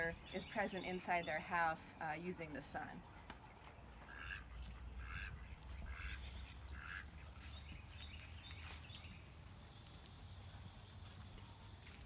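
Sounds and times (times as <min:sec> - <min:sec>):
duck quacking: 0:04.1 - 0:04.4, 0:05.0 - 0:07.2.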